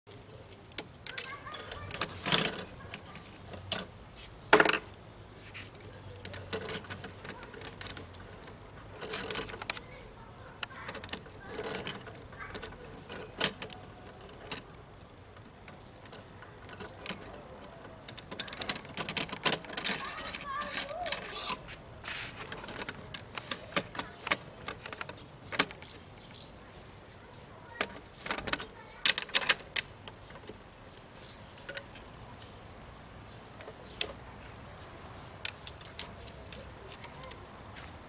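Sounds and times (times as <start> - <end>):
metal lock clicking and rattling: 0.8 - 3.9, 6.1 - 10.0, 10.6 - 21.7, 22.4 - 26.4, 27.1 - 30.6, 35.4 - 37.4.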